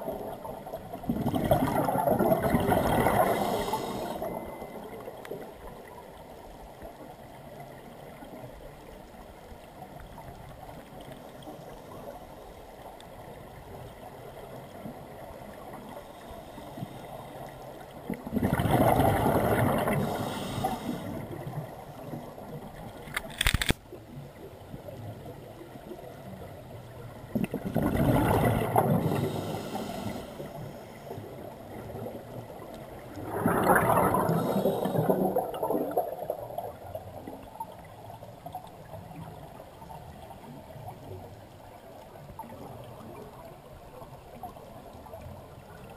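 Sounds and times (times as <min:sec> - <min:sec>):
scuba regulator bubbles rushing: 0:00.0 - 0:05.2, 0:18.0 - 0:22.7, 0:27.3 - 0:39.6
underwater low hiss: 0:00.0 - 0:08.4, 0:09.1 - 0:23.0, 0:24.3 - 0:45.9
sharp click: 0:23.1 - 0:23.8.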